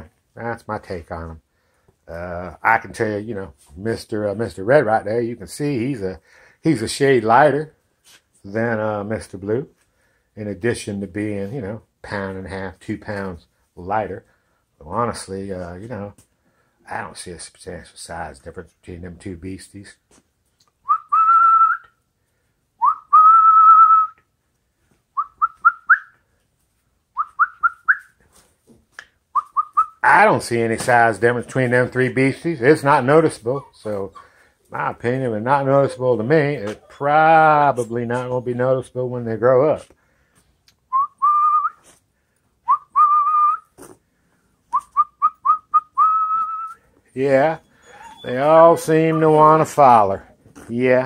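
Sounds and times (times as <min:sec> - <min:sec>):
person whistling: 0:20.9 - 0:21.9, 0:22.8 - 0:24.2, 0:25.2 - 0:26.2, 0:27.2 - 0:28.2, 0:40.9 - 0:41.8, 0:42.7 - 0:43.7, 0:44.7 - 0:46.8.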